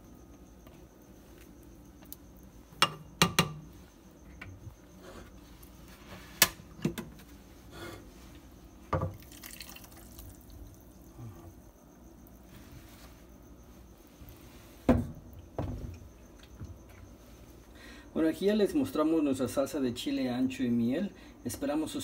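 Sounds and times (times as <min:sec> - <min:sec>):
sauce pouring into bowl: 0:09.1 - 0:10.9.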